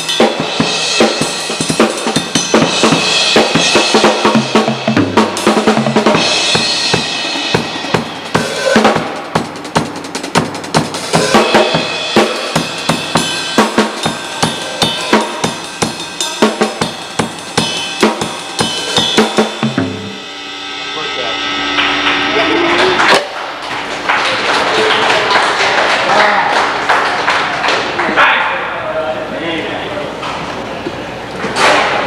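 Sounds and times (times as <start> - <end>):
cymbal crashes: 0.0 - 9.8, 10.4 - 23.7
drum kit playing fast pattern: 0.0 - 23.2.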